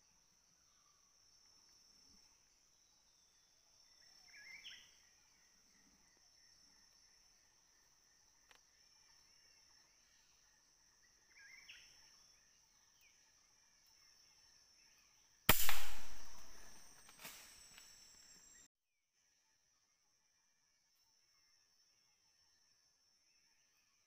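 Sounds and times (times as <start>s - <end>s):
faint bird chirps: 0.0s - 24.0s
loud gunshot: 15.5s - 17.4s.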